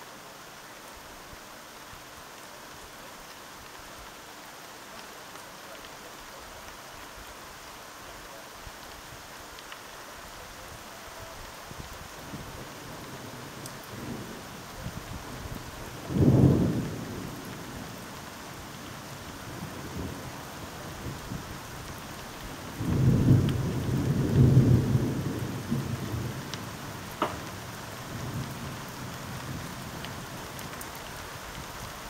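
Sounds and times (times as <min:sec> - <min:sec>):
steady rain: 0:00.0 - 0:32.0
distant thunder rumbling: 0:22.7 - 0:30.6.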